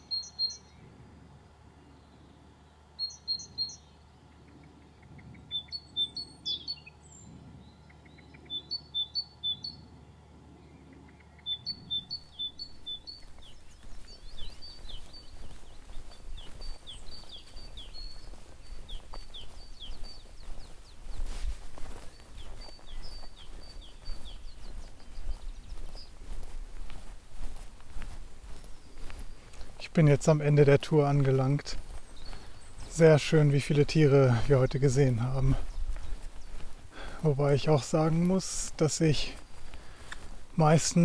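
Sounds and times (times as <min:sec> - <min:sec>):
songbirds calling high short notes: 0:00.0 - 0:41.0.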